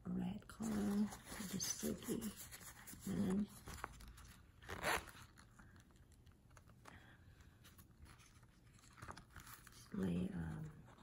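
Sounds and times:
wallet rustling scrape: 0.6s - 5.5s.

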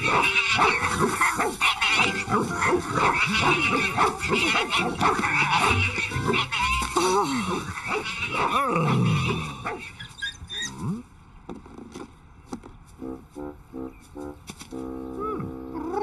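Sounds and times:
cartoon dog growling and whining: 0.0s - 11.0s, 15.2s - 16.0s.

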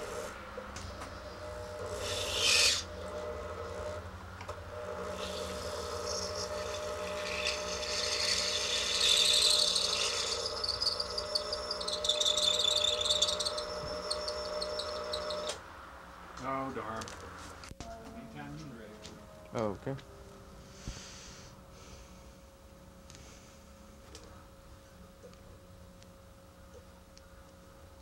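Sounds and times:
steady hum: 0.0s - 28.0s
hand tool scraping acrylic: 5.0s - 15.6s.

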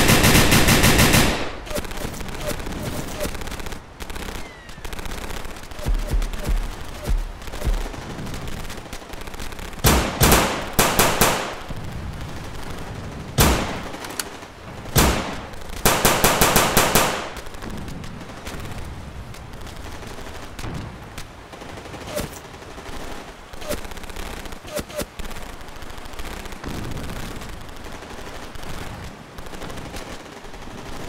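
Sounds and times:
machine-gun fire: 0.0s - 8.6s, 9.8s - 11.8s, 14.9s - 17.5s
background battle din: 0.0s - 31.0s
low thuds: 5.8s - 8.5s.

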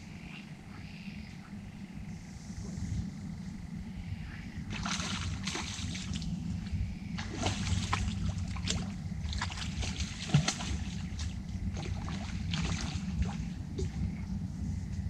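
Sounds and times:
water splashing and sloshing: 4.6s - 15.0s.

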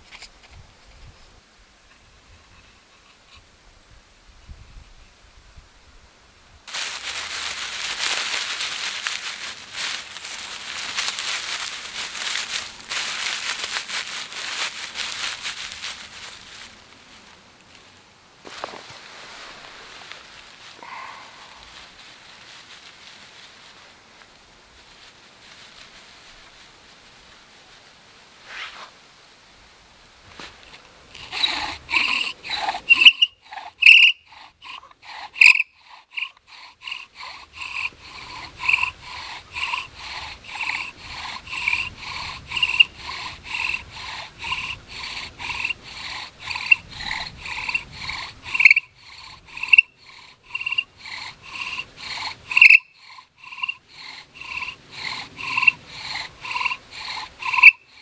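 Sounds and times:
bow drill spindle squeaking: 31.2s - 39.0s, 46.5s - 48.9s.

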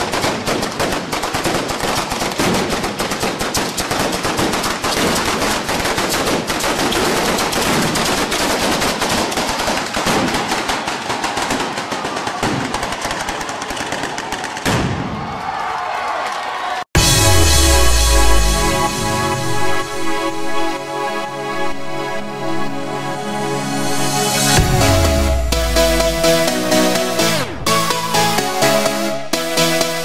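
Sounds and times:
firecrackers banging: 0.0s - 15.3s, 17.0s - 20.6s.

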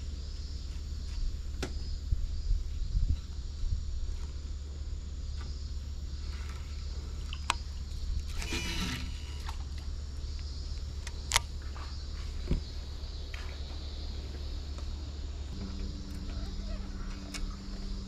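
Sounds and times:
high insect drone: 0.0s - 18.0s
steady low hum: 0.0s - 18.0s
fishing reel line whirring: 15.6s - 18.0s.

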